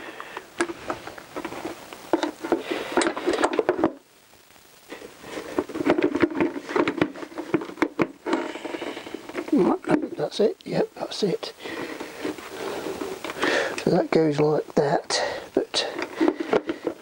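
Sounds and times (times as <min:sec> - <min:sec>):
plastic clicks knocks and scrapes: 0:05.4 - 0:09.5.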